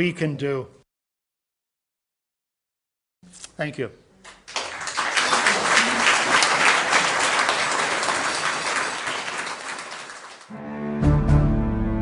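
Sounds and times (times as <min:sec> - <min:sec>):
audience applauding: 0:04.3 - 0:10.5.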